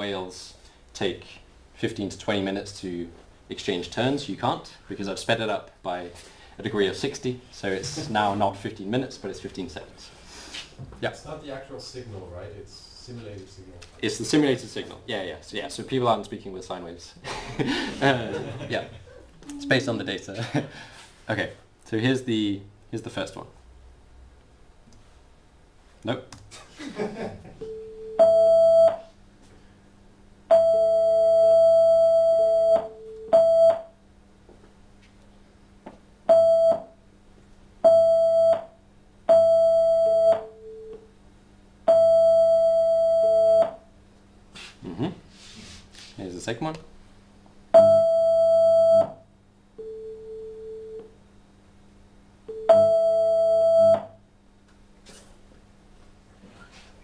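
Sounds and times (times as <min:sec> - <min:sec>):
lower sine tone: 0:52.5 - 0:54.2.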